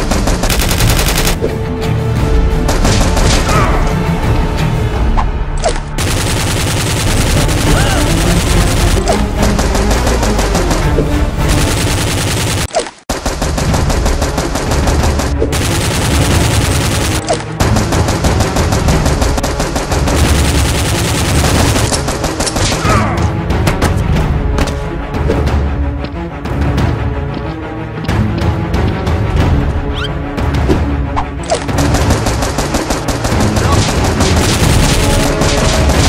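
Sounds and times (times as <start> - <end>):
automatic gunfire bursts: 0.0 - 1.4, 6.0 - 10.8, 11.5 - 22.8, 31.8 - 36.0
music: 0.0 - 36.0.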